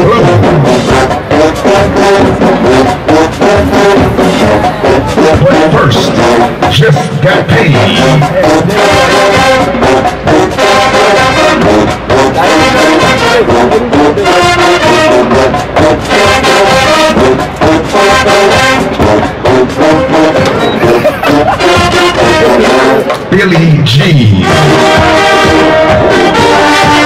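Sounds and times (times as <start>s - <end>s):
steady drum beats: 0.0s - 27.0s
trombones and trumpets: 0.0s - 27.0s.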